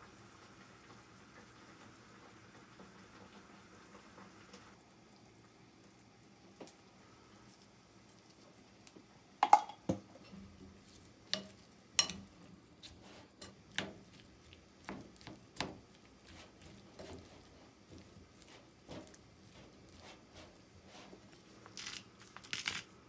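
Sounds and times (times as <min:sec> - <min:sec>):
utensils and dishes clinking: 0:09.4 - 0:10.4, 0:11.4 - 0:12.3.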